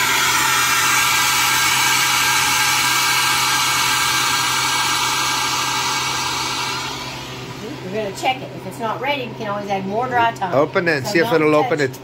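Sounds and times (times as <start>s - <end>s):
air hissing through hose: 0.0s - 7.6s.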